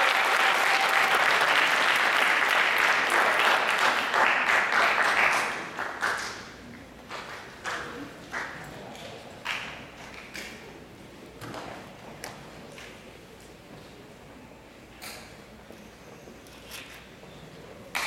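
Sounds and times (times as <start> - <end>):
audience applauding: 0.0 - 8.6.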